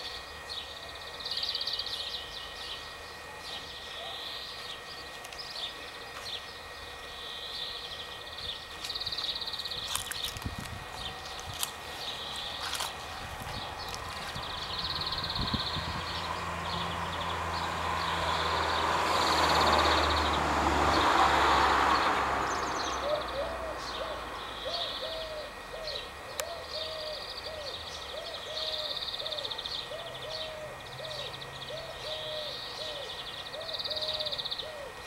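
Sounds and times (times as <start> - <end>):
bird hooting call: 0.0 - 6.3, 22.8 - 35.0
cicadas buzzing: 0.0 - 35.0
rushing noise with low hum: 7.8 - 27.1.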